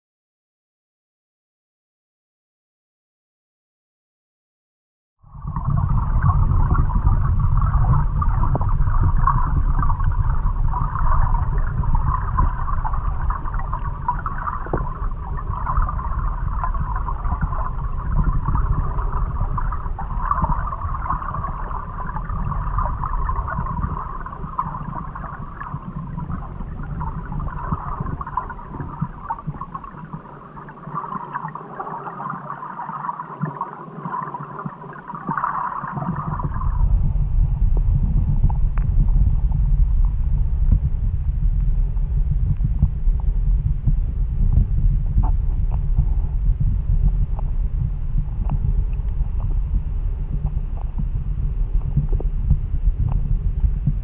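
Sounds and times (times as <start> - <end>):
muffled underwater water rumble: 5.2 - 54.0
crackling hiss: 5.4 - 43.5.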